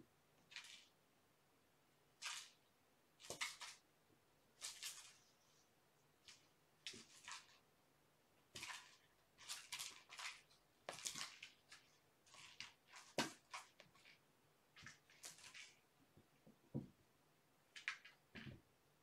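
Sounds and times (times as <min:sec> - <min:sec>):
soft knock: 0:16.7 - 0:17.0.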